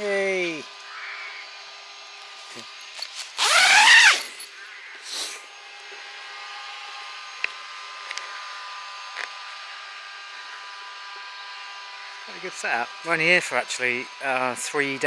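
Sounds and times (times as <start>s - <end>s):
tent zip pulled open: 3.0s - 4.5s.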